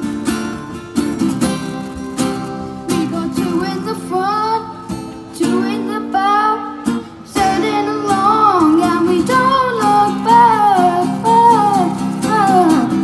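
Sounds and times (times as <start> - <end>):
acoustic guitar strumming: 0.0 - 13.0
boy singing a pop song: 2.9 - 13.0.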